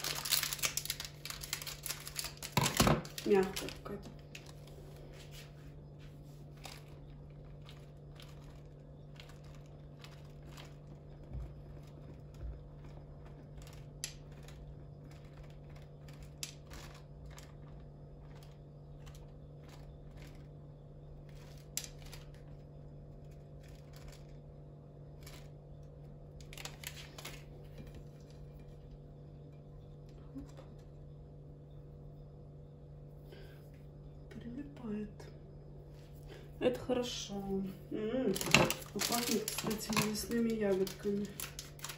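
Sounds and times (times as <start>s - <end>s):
plastic packet rustling: 0.0s - 5.2s, 26.4s - 28.2s, 38.2s - 41.9s
steady low hum: 0.0s - 41.9s
sprinkles clicking: 38.3s - 41.9s.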